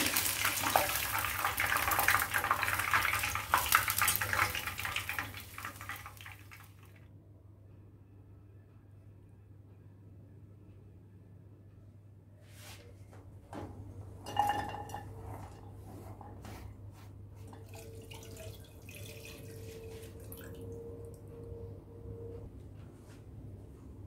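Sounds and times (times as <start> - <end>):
water splashing into a saucepan: 0.0 - 7.0, 17.5 - 20.7.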